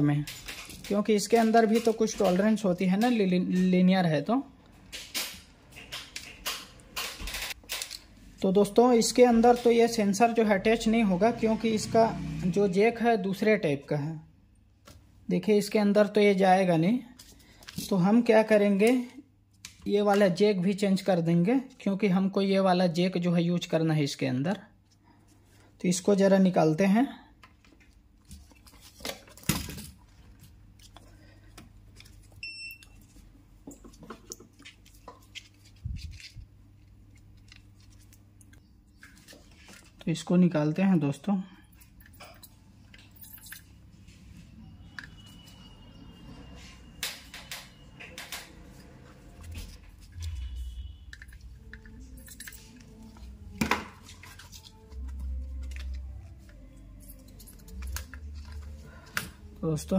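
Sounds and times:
low electrical hum: 24.2 - 59.9.

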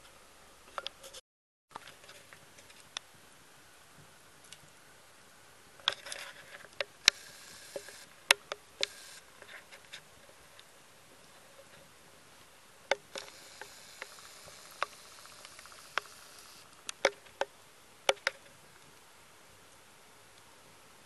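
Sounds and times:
fire hissing: 7.1 - 8.1, 13.2 - 16.7.

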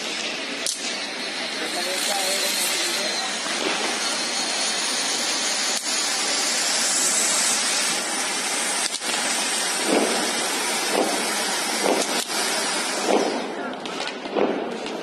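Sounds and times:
firework fountain hissing: 0.0 - 15.0
firework pops: 0.2 - 1.0, 8.8 - 12.4, 13.0 - 15.0.

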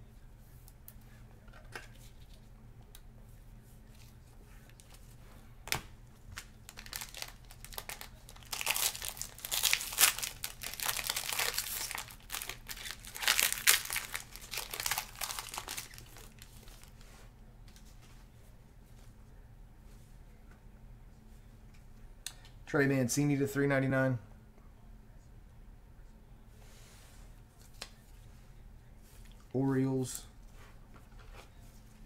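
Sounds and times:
plastic wrapper crinkling and tearing: 5.7 - 17.0.

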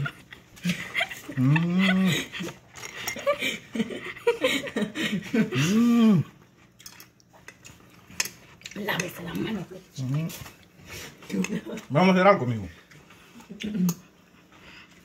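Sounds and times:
man humming mmm: 5.6 - 6.4
chewing cucumber: 6.3 - 11.9.

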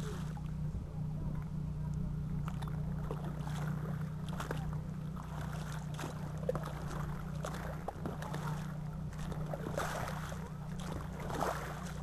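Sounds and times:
faint voices: 0.0 - 3.1
boat motor humming: 0.0 - 12.0.

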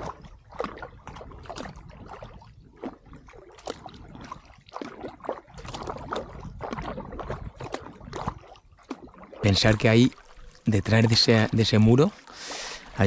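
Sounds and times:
wind rumble on microphone: 0.0 - 8.6
kayak paddle strokes: 0.0 - 13.0
waves splashing against hull: 0.0 - 13.0.

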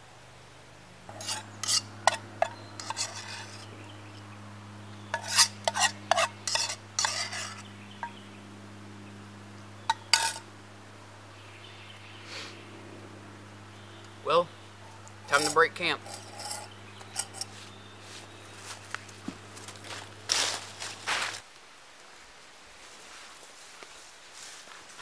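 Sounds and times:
low hum: 0.0 - 21.4
utensil scraping a dish: 1.1 - 3.8, 5.1 - 8.2, 9.9 - 10.4, 15.2 - 17.8.

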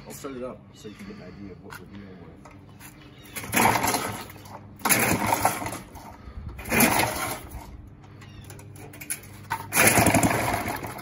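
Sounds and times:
small engine turning over: 3.3 - 7.7, 9.0 - 11.0
recoil starter cord pulls: 3.4 - 7.7, 8.9 - 11.0.

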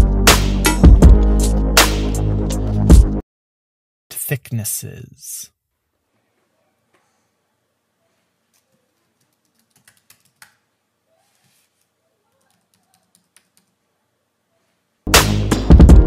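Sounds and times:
faint keyboard typing: 8.5 - 10.6, 11.7 - 13.8.

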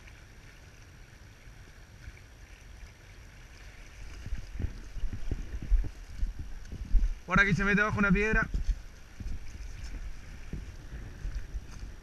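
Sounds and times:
small waves lapping on rocks: 0.0 - 12.0
wind rumbling on microphone: 2.8 - 12.0.

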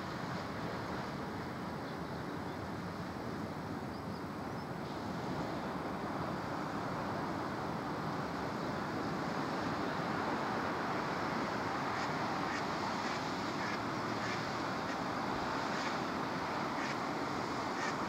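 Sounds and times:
tidal bore roaring: 9.8 - 18.0.

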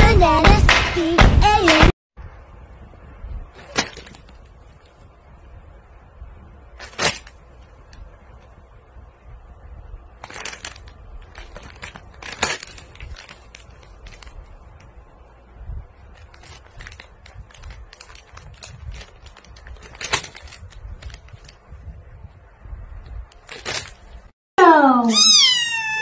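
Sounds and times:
plastic chip bags crackling: 10.2 - 14.6, 16.1 - 21.6, 23.4 - 24.2.

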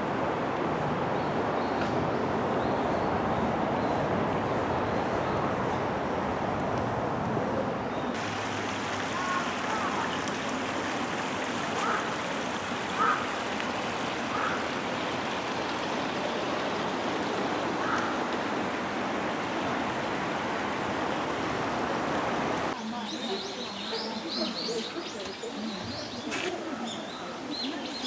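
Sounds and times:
stream running over stones: 8.1 - 28.0.

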